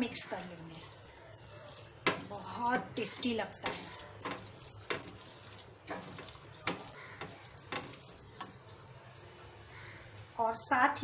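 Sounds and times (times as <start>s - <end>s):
spatula scraping frying pan: 0.1s - 8.6s.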